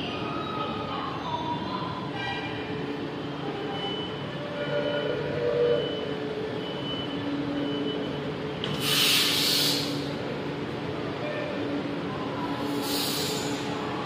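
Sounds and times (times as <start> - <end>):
door warning beeps: 5.7 - 8.3
loud air hiss: 8.7 - 10.2, 12.6 - 13.8.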